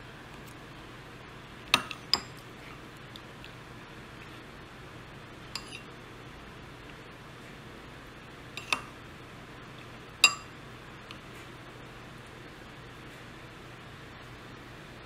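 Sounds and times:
metal spoon clinking ceramic bowl: 1.8s - 2.4s, 5.6s - 5.8s, 8.6s - 8.9s, 10.2s - 10.5s.

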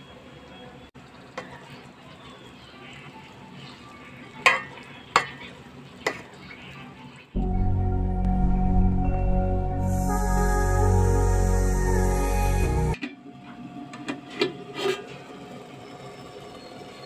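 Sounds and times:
faint frying sizzle: 0.1s - 7.4s
background music: 7.3s - 13.0s.

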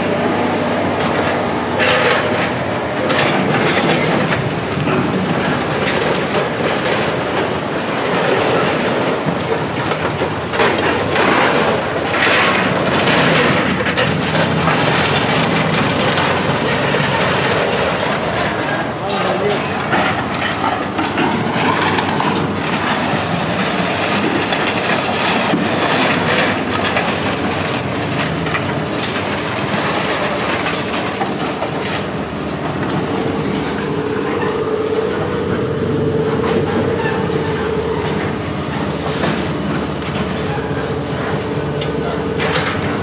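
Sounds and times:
heavy machinery running: 0.0s - 43.0s
steady whine: 31.4s - 43.0s.

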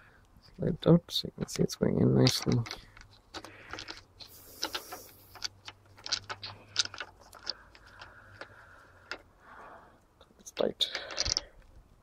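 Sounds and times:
handling rustle: 1.4s - 9.3s.

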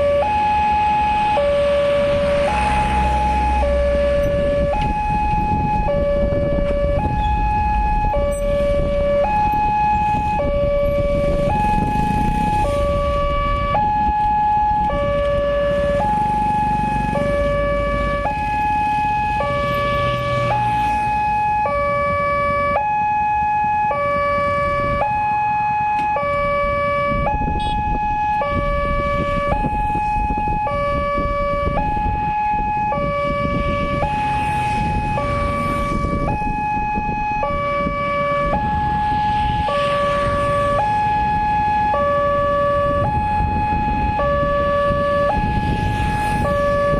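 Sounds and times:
two-tone level-crossing alarm: 0.0s - 46.9s.

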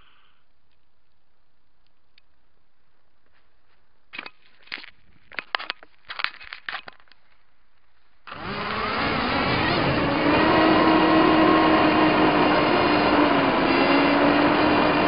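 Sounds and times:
handling clicks and rustles: 0.6s - 8.1s
quadcopter motors whining: 8.3s - 15.0s.

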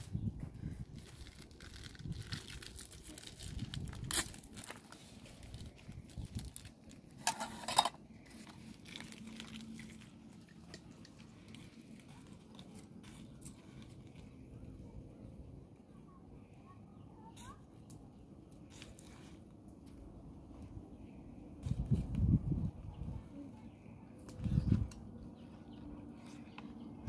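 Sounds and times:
plastic packet crinkling: 0.9s - 7.6s, 8.2s - 14.4s.

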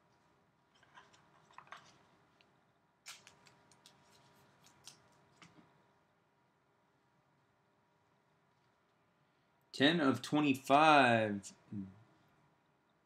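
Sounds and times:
soft handling clicks and rustles: 0.0s - 5.8s.

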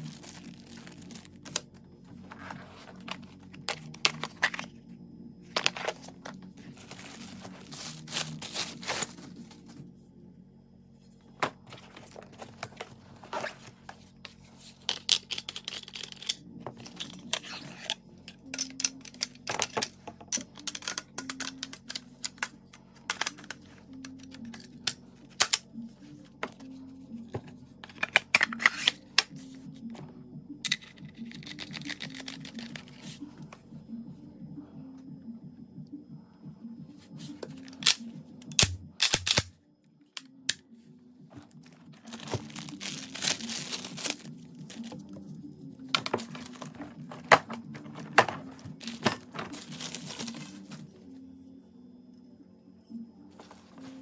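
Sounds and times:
plastic wrapping crinkling and tearing: 0.0s - 1.6s, 6.8s - 9.3s, 42.0s - 45.0s, 48.8s - 50.8s
quiet background music: 0.0s - 54.0s
clicks and knocks of parts: 14.8s - 25.7s.

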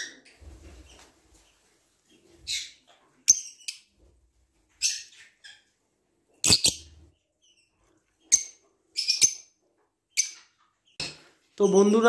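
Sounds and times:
lovebirds chirping shrilly: 6.4s - 9.5s.

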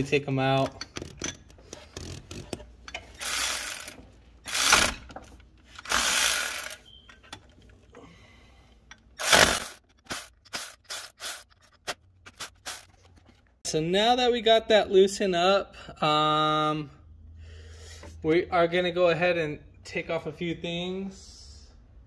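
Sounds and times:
ratchet wrench ratcheting: 0.8s - 5.1s, 5.7s - 6.8s, 9.2s - 12.9s.

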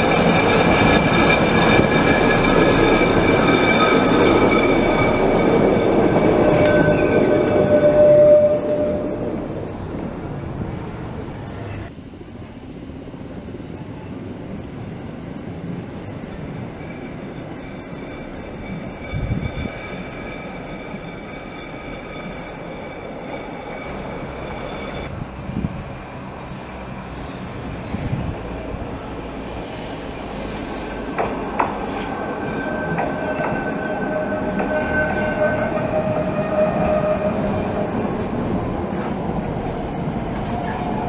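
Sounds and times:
wheels squealing: 0.0s - 9.3s, 10.6s - 25.1s, 31.8s - 38.2s
railcar rumbling: 0.0s - 41.0s.

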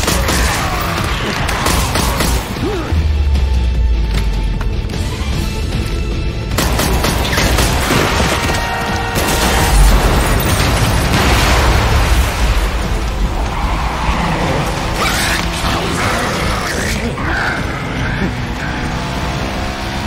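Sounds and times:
action film music: 0.0s - 20.0s
crash and impact effects: 9.2s - 13.5s.

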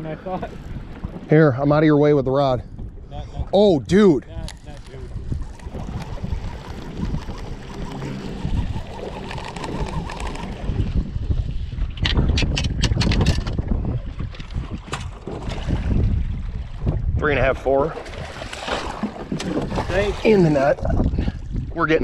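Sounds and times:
wind buffeting microphone: 0.0s - 22.0s
water washing against boat hull: 17.9s - 21.2s.

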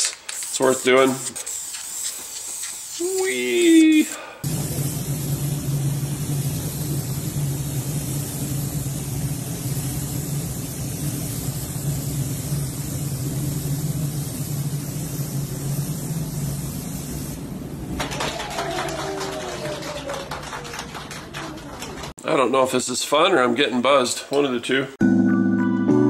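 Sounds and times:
paint spray gun hissing: 0.0s - 17.4s
ventilation droning: 3.0s - 22.5s
group clapping and cheering: 17.9s - 22.2s.

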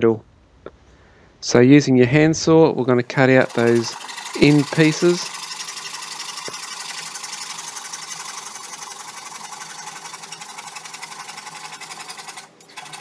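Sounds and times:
handsaw cutting wood: 3.3s - 11.9s.

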